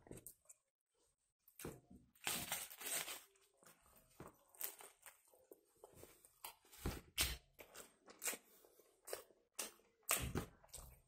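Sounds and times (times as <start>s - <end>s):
person chewing food: 7.4s - 11.0s.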